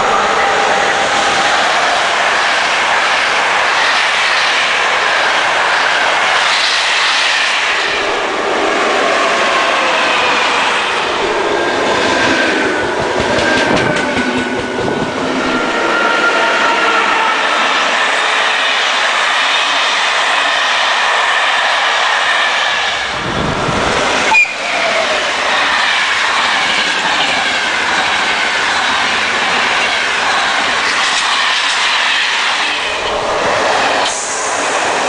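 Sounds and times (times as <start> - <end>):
train wheels rushing on rails: 0.0 - 35.0
clacks over rail joints: 12.8 - 15.1, 28.9 - 32.8.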